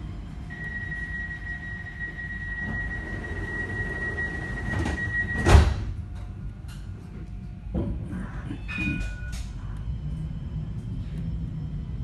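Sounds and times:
tram rumble: 0.0 - 12.0
high warning beep: 0.5 - 5.5.

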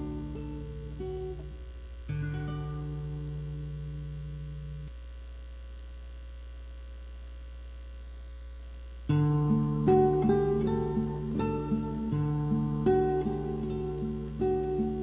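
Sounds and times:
guitar music: 0.0 - 4.9, 9.1 - 15.0
steady low hum: 0.0 - 15.0.

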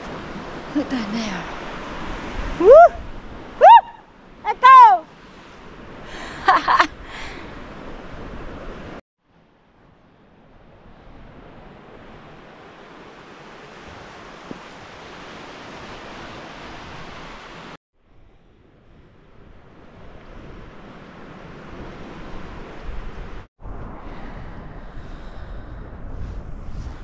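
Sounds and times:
wind on microphone: 0.0 - 4.1, 18.3 - 27.0
sea surf: 0.0 - 27.0
woman whooping: 2.6 - 3.0, 3.6 - 5.0.

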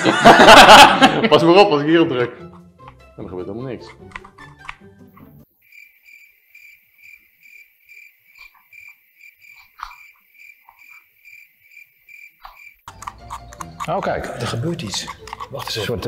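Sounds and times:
crickets chirping: 5.2 - 16.0.

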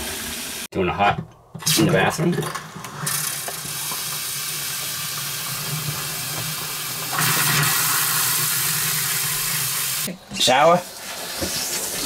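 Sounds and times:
faucet water running into sink: 3.0 - 10.1.

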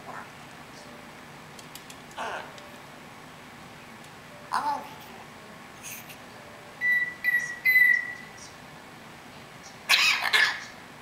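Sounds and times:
parrot whistling: 6.8 - 8.4.

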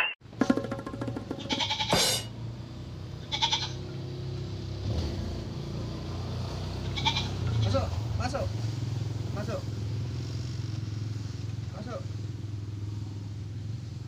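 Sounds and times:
goat bleating: 1.4 - 2.3, 3.2 - 3.9, 6.8 - 7.8.

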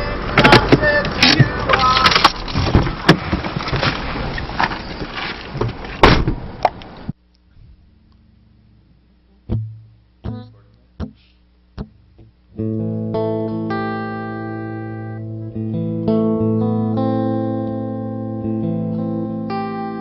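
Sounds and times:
car cabin noise: 0.0 - 7.1
handling clicks and knocks: 0.3 - 6.0
sharp clunk: 6.0 - 6.8
acoustic guitar notes plucked: 9.3 - 20.0.

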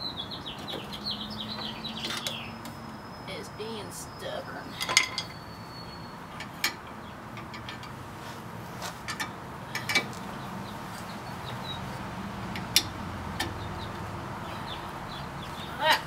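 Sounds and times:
metal tool clicks and taps: 6.3 - 8.0.

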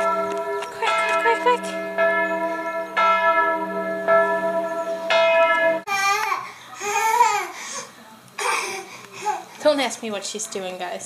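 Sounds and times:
church bells ringing: 0.0 - 6.2.

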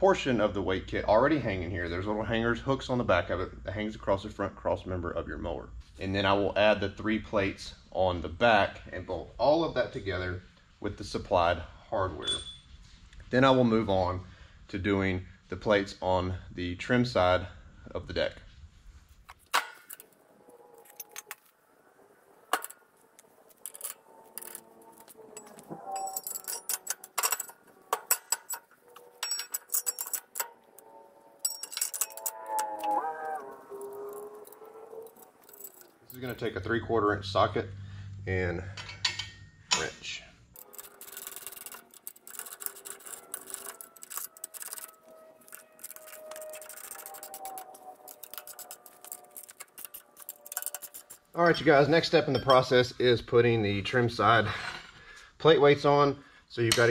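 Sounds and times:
steel weight plates clinking: 22.4 - 36.6, 38.8 - 39.9, 40.6 - 52.9
socket ratchet clicking: 40.6 - 51.4.

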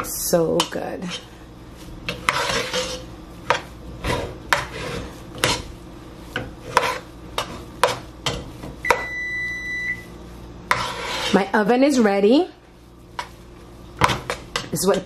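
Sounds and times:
spoon stirring and scraping pot: 0.0 - 9.1, 10.6 - 12.1, 12.9 - 15.0
oven electronic beep: 8.8 - 10.2.

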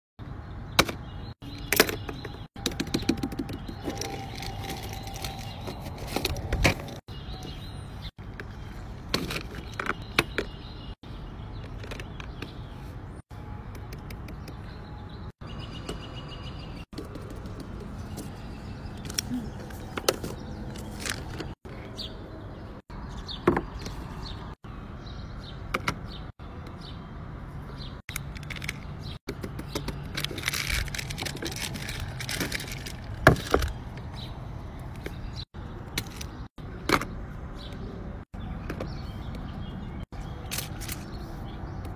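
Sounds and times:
bird chirps: 0.4 - 30.5.

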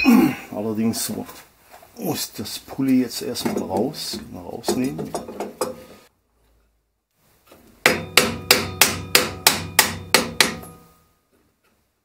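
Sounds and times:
hammer blows ringing: 7.8 - 11.1.

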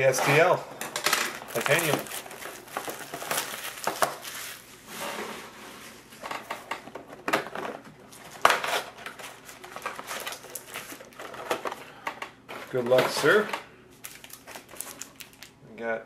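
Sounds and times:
cardboard and wrappers rustling: 1.1 - 4.8, 6.5 - 11.8, 14.0 - 15.5.

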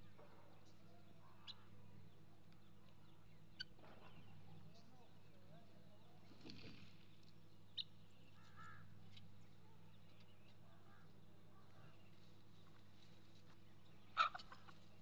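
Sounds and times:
chickens and guineafowl calling: 14.0 - 15.0.

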